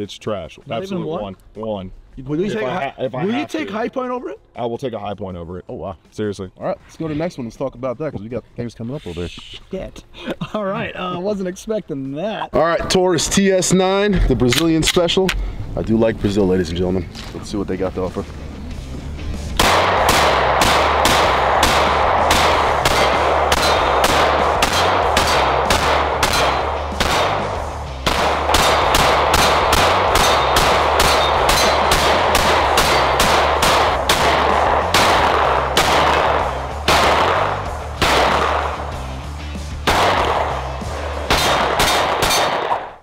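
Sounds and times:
background music with bass: 5.4 - 42.7
pistol shots: 19.6 - 39.0, 39.8 - 43.0.

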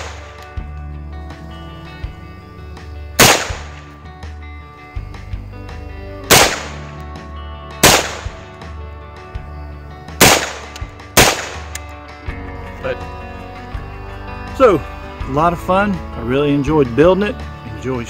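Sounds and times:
gunshots with sharp crack: 0.0 - 0.4, 3.2 - 3.9, 6.3 - 6.9, 7.8 - 8.5, 10.2 - 11.8.

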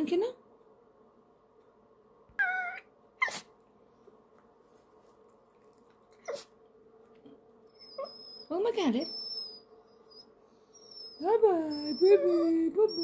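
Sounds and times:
dog whining: 2.3 - 3.6, 6.2 - 6.6, 7.7 - 13.0
dog yipping: 2.4 - 3.5, 6.2 - 6.5, 7.7 - 13.0.

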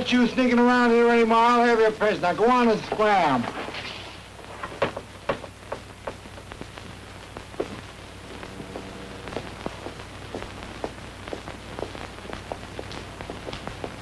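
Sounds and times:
film soundtrack surface crackle: 0.0 - 14.0
low steady hum: 0.0 - 14.0.

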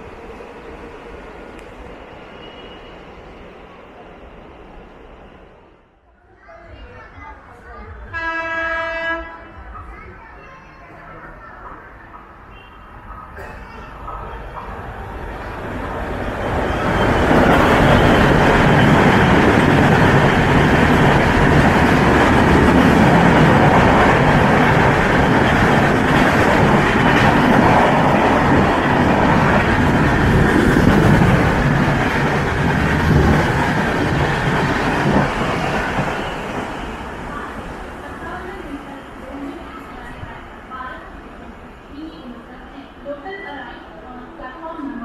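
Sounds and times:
train wheels rushing on rail: 11.4 - 41.8.

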